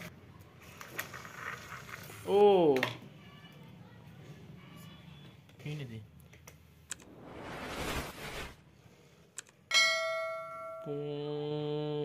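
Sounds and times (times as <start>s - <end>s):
whoosh: 6.9s - 9.0s
bright bell ding: 9.7s - 11.0s.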